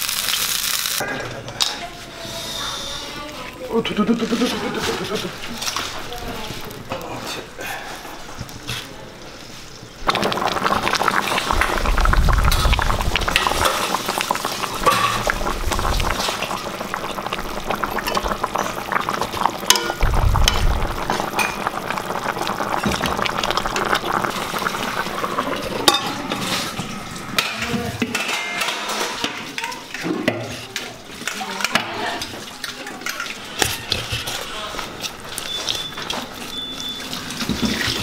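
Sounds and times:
gravy bubbling in a pan: 3.5 - 38.0
low thumps: 19.9 - 21.8.

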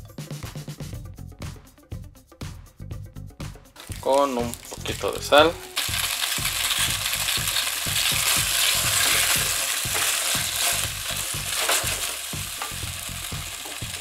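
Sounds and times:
potatoes sizzling in fat: 3.8 - 14.0.

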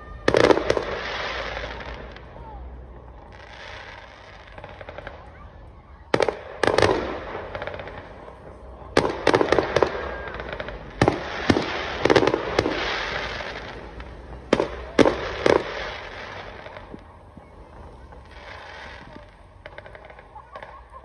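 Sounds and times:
fireworks hiss: 0.0 - 5.4, 6.1 - 21.0
fireworks bangs: 0.0 - 21.0.

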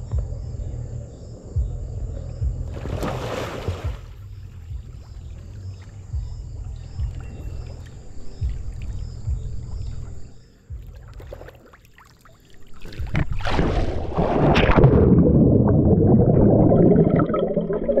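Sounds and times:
low rumble of pool water: 0.0 - 18.0
muffled underwater rushing and gurgling: 12.3 - 18.0.

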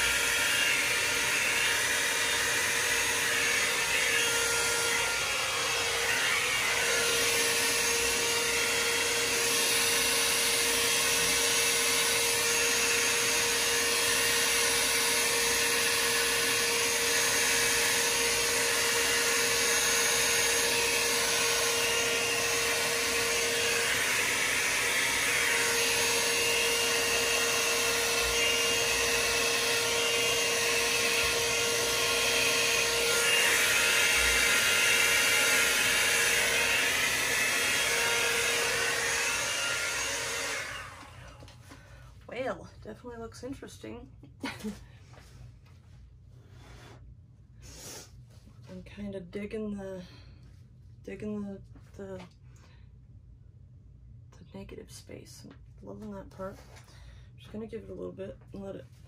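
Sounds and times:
hair dryer running: 0.0 - 42.5.

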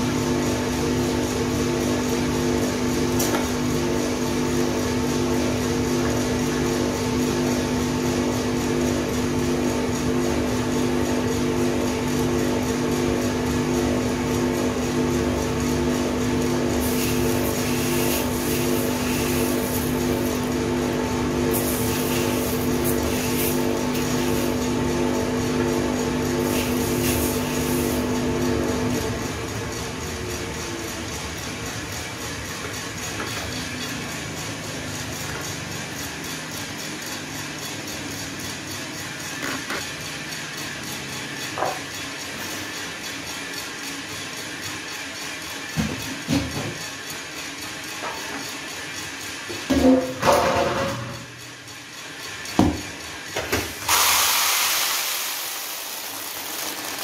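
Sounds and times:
coffee roaster motor and fan hum: 0.0 - 57.0
beans tumbling rattle: 53.9 - 57.0.

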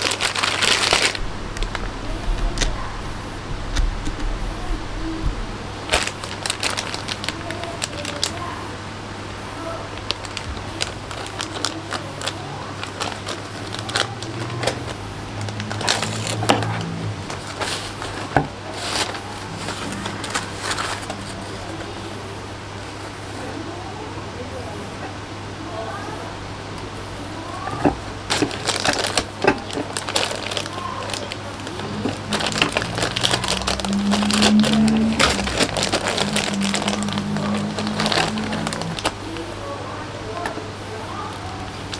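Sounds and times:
plastic bags crinkling: 0.0 - 5.2, 5.8 - 8.7, 9.6 - 22.1, 27.6 - 39.6, 40.3 - 41.9
low steady tones: 0.2 - 7.6, 31.3 - 41.0.

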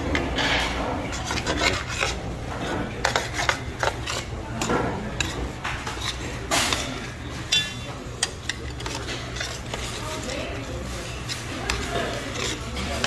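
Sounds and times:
metal ladle scraping a pot: 0.0 - 13.0.

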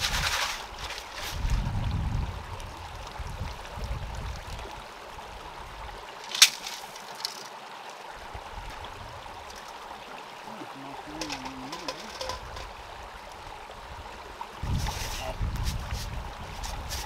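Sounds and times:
wind on microphone: 0.0 - 4.8, 8.3 - 9.5, 11.2 - 17.0
running water: 0.0 - 17.0.

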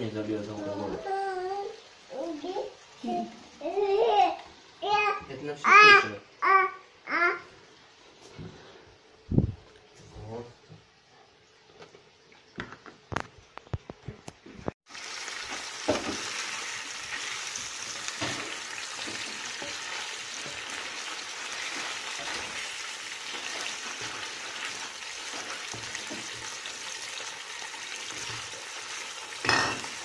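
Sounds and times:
liver sizzling in a frying pan: 1.6 - 3.8, 14.9 - 30.0.

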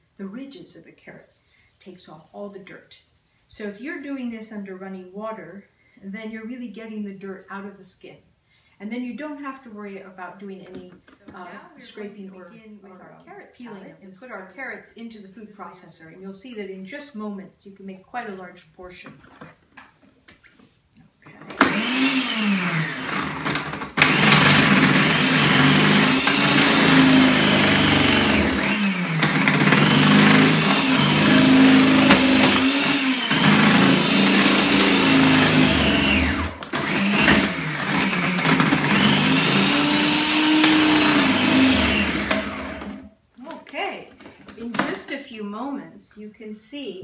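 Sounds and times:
food processor shredding carrots: 21.5 - 43.1.

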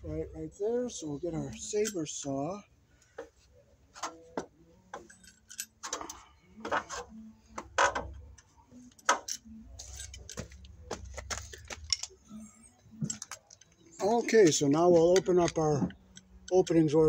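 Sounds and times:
low steady rumble: 0.0 - 1.8
tools clattering: 4.9 - 12.2, 13.0 - 16.8.

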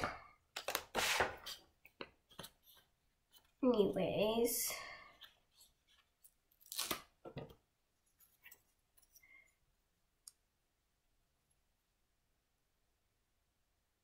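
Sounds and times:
foam pieces peeled out: 6.5 - 7.1.

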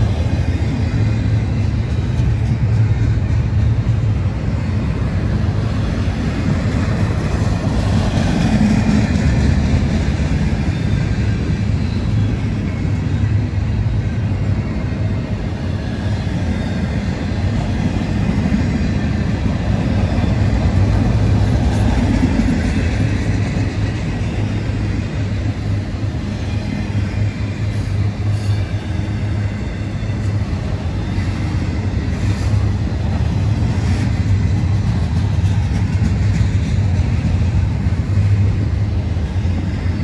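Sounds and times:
freight train wheels rumbling on rail: 0.0 - 40.0.

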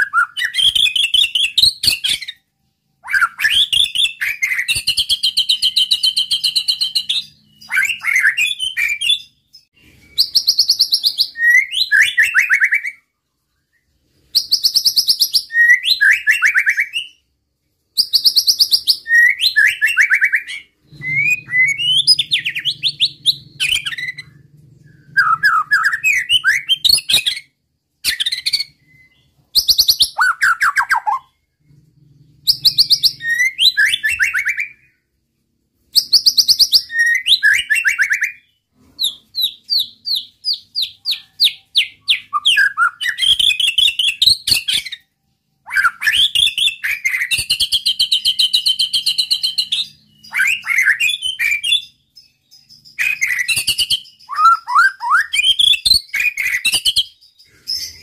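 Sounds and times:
songbird singing trills and whistles: 0.0 - 17.2, 18.0 - 35.0, 35.9 - 58.0.

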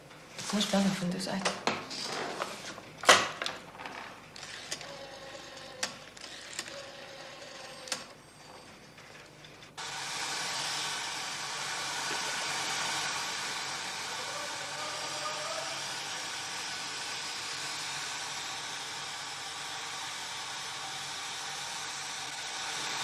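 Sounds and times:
steady hiss: 9.8 - 23.0.

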